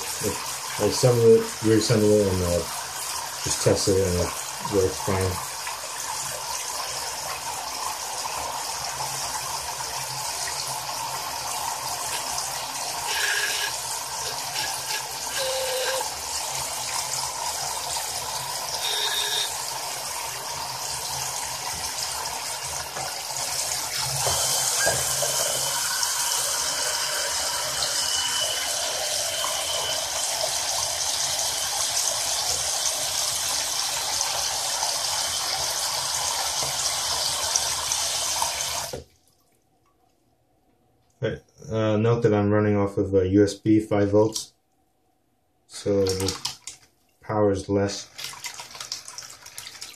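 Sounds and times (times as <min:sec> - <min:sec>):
water splashing in a sink: 0:00.0 - 0:40.1, 0:45.7 - 0:47.2, 0:47.9 - 0:49.9
water pump whine: 0:08.0 - 0:39.0.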